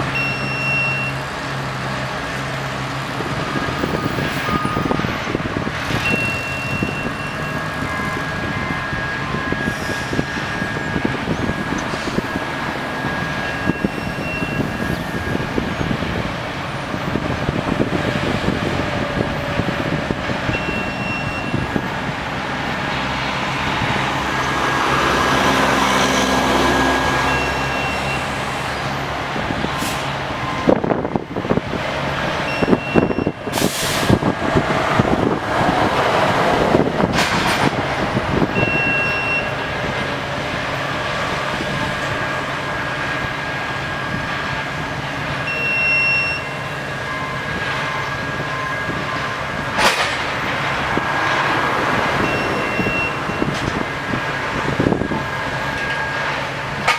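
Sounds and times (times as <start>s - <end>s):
diesel engine running: 0.0s - 56.9s
short high beep: 0.1s - 1.2s, 6.0s - 8.8s, 13.4s - 14.8s, 20.6s - 21.6s, 27.3s - 28.3s, 32.5s - 33.6s, 38.6s - 39.7s, 45.5s - 47.3s, 52.2s - 53.5s.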